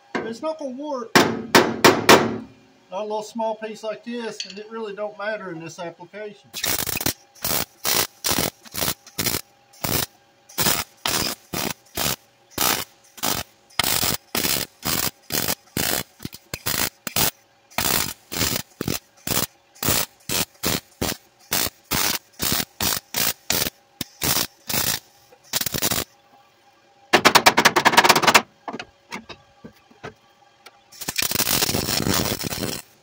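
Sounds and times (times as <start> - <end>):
welding arc crackling: 6.6 - 26.1, 30.9 - 33.0.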